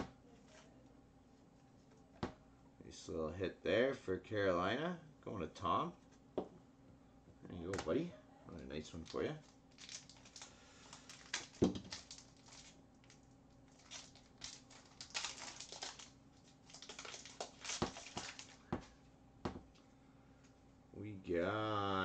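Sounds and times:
card pack wrapper crinkling: 8.9 - 18.9
cards flicked and shuffled: 16.8 - 19.0.

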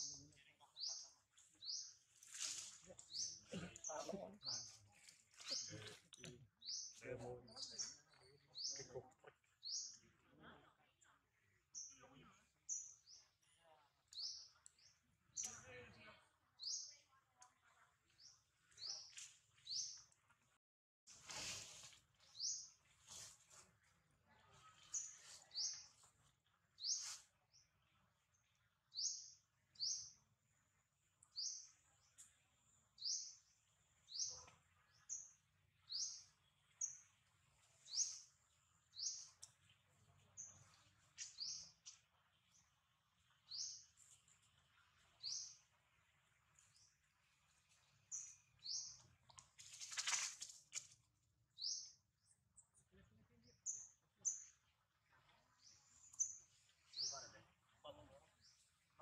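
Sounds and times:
bird chirping: 26.8 - 30.2, 31.2 - 47.0, 47.8 - 49.2, 51.6 - 54.7.

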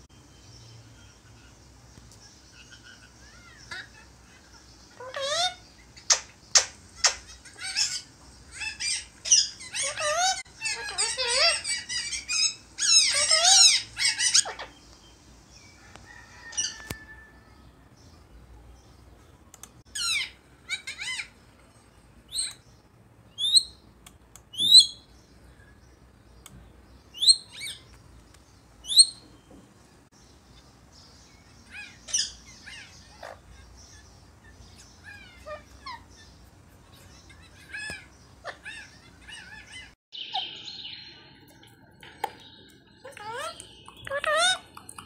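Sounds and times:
parakeet squawking and chattering: 2.5 - 14.9, 19.9 - 21.5, 24.5 - 25.1, 27.1 - 27.9, 28.8 - 29.2, 31.4 - 40.7, 42.4 - 45.0.

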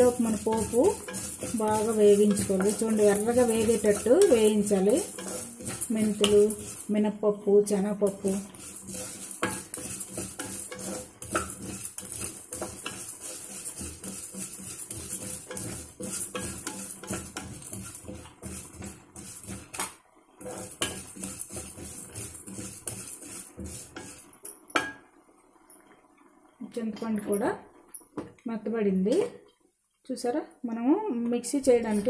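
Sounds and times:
spatula scraping lentils in pan: 0.0 - 25.0, 31.6 - 32.0.

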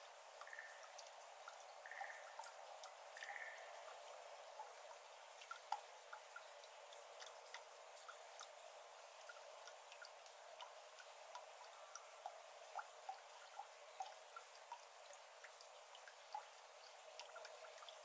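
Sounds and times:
faint steady hiss: 0.0 - 18.0
water drops plinking: 0.4 - 8.6.

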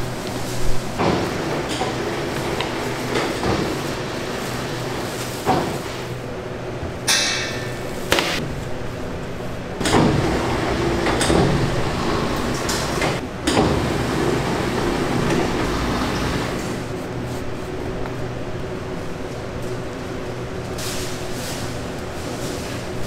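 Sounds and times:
machine hum: 0.0 - 20.7
equipment knocks and clatters: 1.0 - 4.6
metal clang: 7.1 - 8.4.

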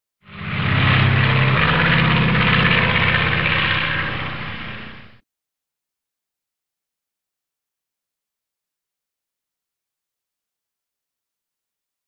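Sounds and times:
propeller aircraft engine running: 0.2 - 5.2.

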